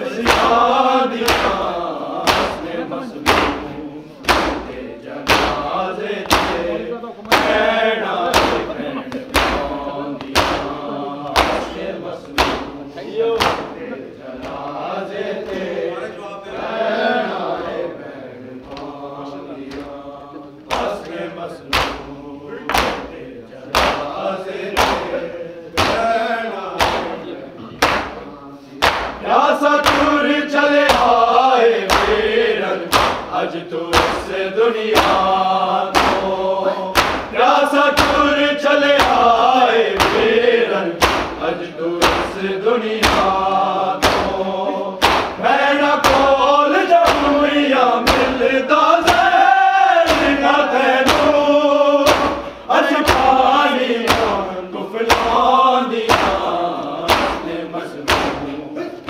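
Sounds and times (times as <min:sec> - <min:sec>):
group chanting a lament in unison: 0:00.0 - 0:59.0
rhythmic chest-beating thumps: 0:00.0 - 0:59.0.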